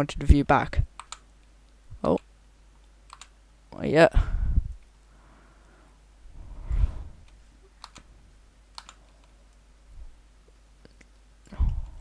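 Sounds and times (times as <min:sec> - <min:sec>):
computer input clicks: 0:01.0 - 0:01.2, 0:03.1 - 0:03.3, 0:07.8 - 0:08.1, 0:08.8 - 0:09.0.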